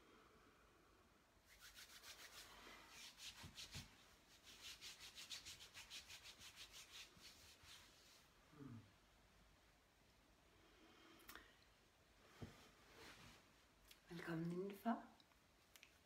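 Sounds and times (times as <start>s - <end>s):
hands rubbing skin and clothing: 1.5s - 8.3s.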